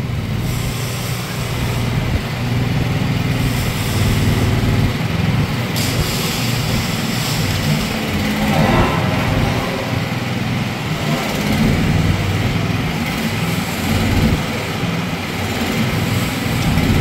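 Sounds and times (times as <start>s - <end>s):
mini excavator engine running: 0.0s - 9.2s.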